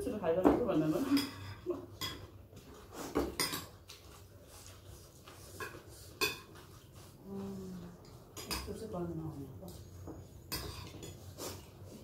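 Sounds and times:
spoons clinking on ceramic bowls: 0:01.0 - 0:02.3, 0:03.3 - 0:03.8, 0:05.6 - 0:06.6, 0:08.3 - 0:08.9, 0:10.4 - 0:11.3.

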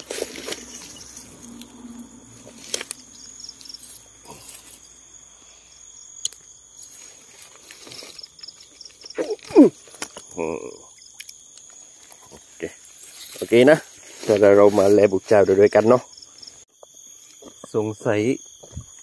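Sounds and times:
rustling through grass: 0:00.0 - 0:05.8, 0:06.7 - 0:10.1, 0:11.8 - 0:16.0
night insects chirping chorus: 0:00.0 - 0:19.0.

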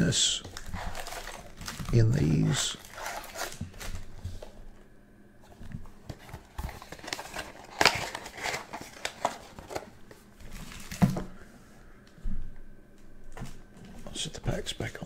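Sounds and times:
wrappers rustling and crinkling: 0:00.0 - 0:04.6, 0:06.0 - 0:11.2.

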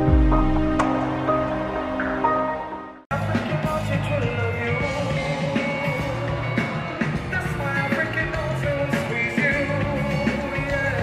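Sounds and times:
live band playing: 0:00.0 - 0:11.0
lead singer: 0:03.1 - 0:11.0.

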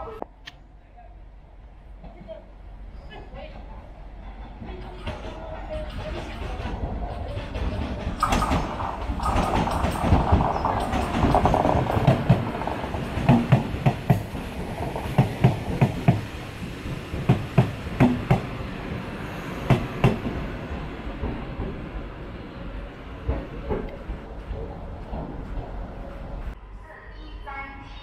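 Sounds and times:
train rolling rumble: 0:01.2 - 0:26.7
train wheels clicking over rail joints: 0:04.3 - 0:21.9, 0:23.2 - 0:26.1.

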